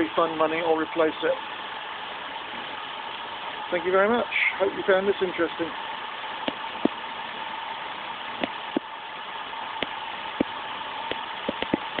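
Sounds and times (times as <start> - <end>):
car engine idling with whine: 0.0 - 12.0
sharp engine clicks: 9.8 - 12.0.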